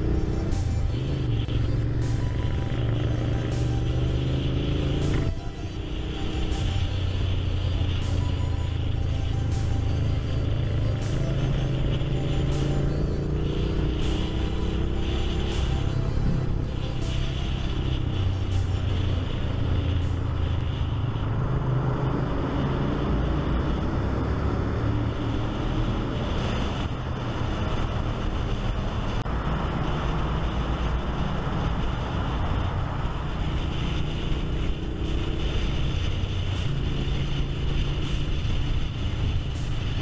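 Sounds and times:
motorcycle engine running: 0:00.0 - 0:22.6, 0:33.0 - 0:40.0.

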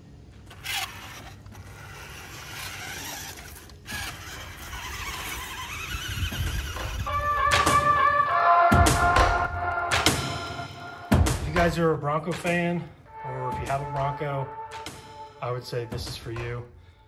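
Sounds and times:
toy truck electric motor whining: 0:00.4 - 0:08.7.

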